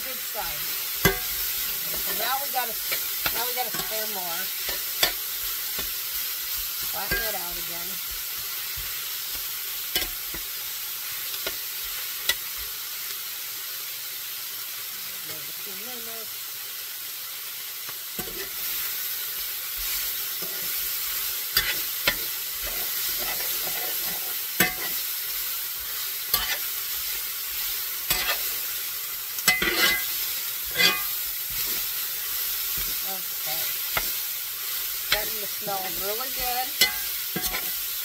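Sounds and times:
meat sizzling in a pan: 0.0s - 38.0s
utensil scraping and knocking pan: 29.5s - 31.9s.

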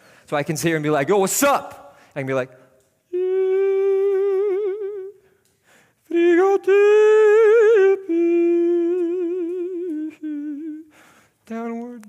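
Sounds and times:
man singing high held notes: 3.1s - 5.3s, 6.1s - 10.9s.

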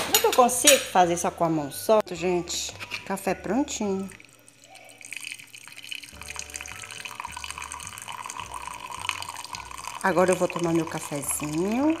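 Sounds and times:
coffee pouring into a ceramic mug: 2.8s - 12.0s.

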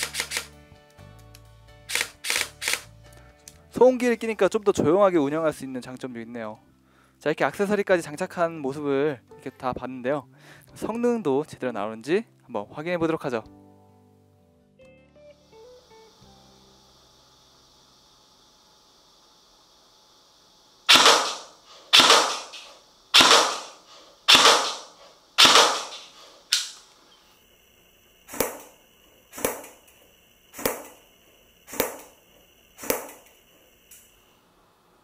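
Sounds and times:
airsoft gun shots: 20.9s - 26.8s, 28.3s - 28.7s, 29.3s - 29.8s, 30.6s - 31.0s, 31.7s - 32.2s, 32.8s - 33.2s.

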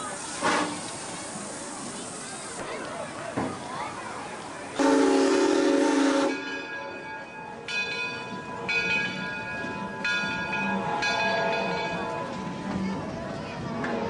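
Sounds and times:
steam locomotive whistle: 0.3s - 0.9s, 4.8s - 6.7s
locomotive bell ringing: 4.8s - 14.0s.

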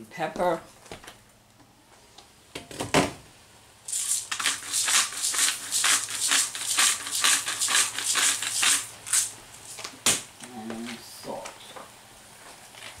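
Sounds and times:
pepper grinder grinding: 3.9s - 9.3s.

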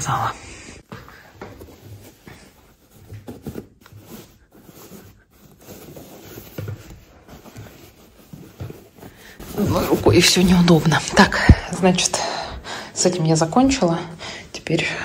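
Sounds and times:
fabric rustling: 0.9s - 12.0s.

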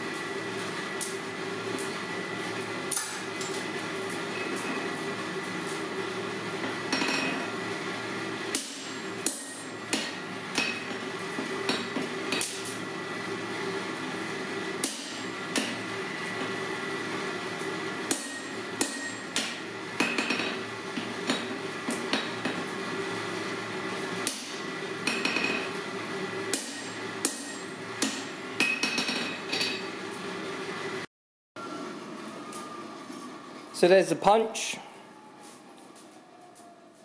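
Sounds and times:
steady background hum: 0.0s - 37.0s
hammer striking metal punch: 8.5s - 10.9s, 14.8s - 15.8s, 18.1s - 20.6s, 26.5s - 29.9s.

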